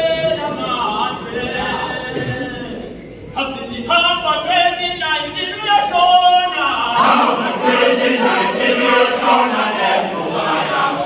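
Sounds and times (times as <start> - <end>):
male choir singing in harmony: 6.8 - 11.0.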